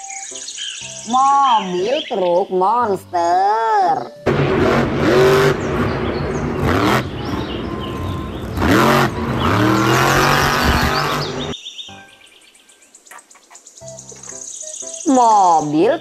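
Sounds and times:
monster truck engine revving: 4.3s - 11.6s.

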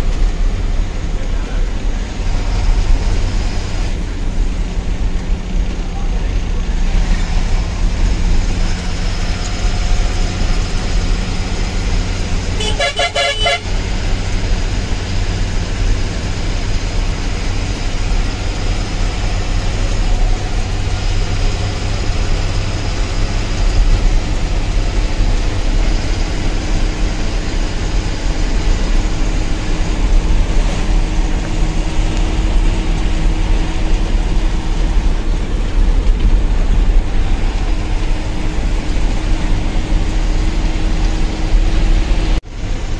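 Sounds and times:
truck engine running: 0.0s - 42.9s
truck horn: 12.5s - 14.0s.

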